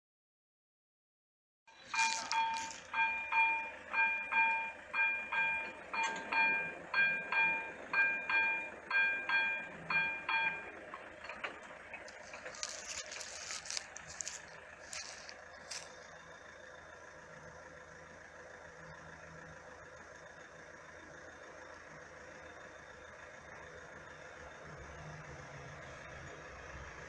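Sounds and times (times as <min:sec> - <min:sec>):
level-crossing warning bell ringing: 0:01.7 - 0:10.9.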